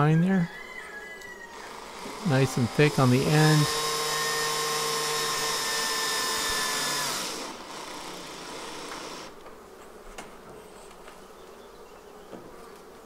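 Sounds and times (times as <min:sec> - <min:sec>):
honey bees humming: 0:00.0 - 0:13.0
cordless drill driving screw: 0:01.6 - 0:09.3.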